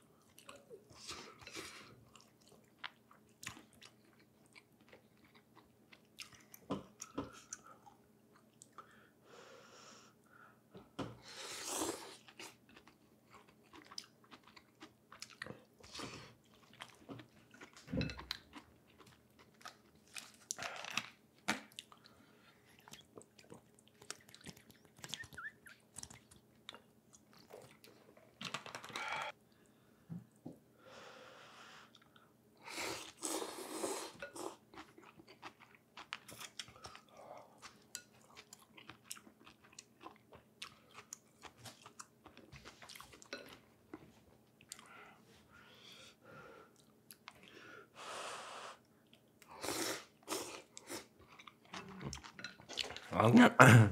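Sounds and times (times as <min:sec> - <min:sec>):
person chewing: 0:01.4 - 0:08.8, 0:11.6 - 0:29.3, 0:33.0 - 0:43.6, 0:49.0 - 0:53.1.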